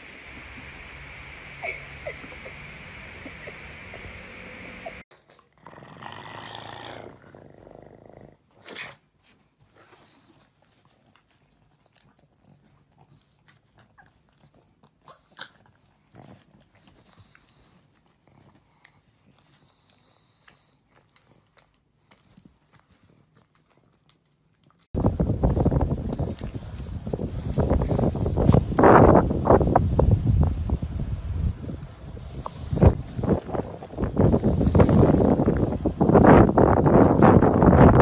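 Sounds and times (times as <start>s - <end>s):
dogs nibbling and scuffling: 9.0s - 30.6s, 31.2s - 38.0s.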